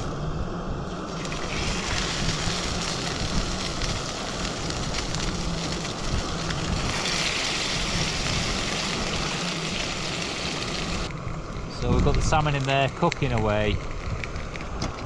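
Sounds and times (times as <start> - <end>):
fish sizzling in frying pan: 1.0 - 11.1.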